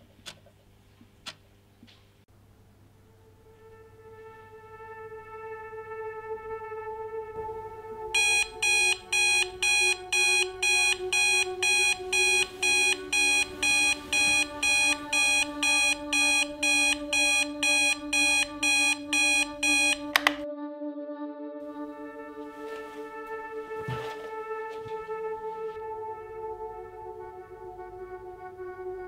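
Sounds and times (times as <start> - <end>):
alarm clock beeping: 8.2 - 20.4
sharp click: 20.1 - 20.4.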